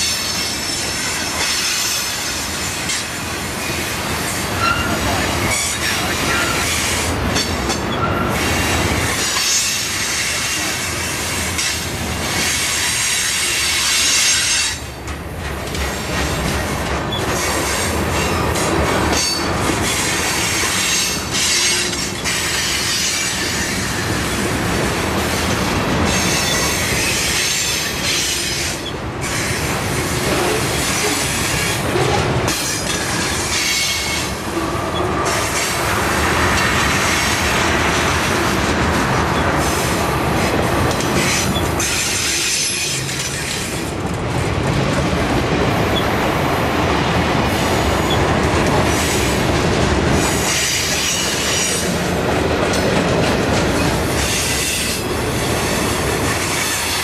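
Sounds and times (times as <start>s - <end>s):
freight train wheels rumbling: 0.0s - 57.0s
wheel squeal: 4.6s - 5.0s.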